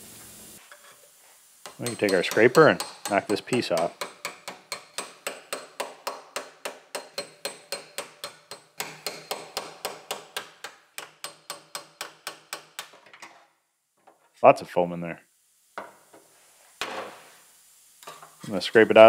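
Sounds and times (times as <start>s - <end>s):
hammer tapping steel scraper: 1.6s - 13.0s.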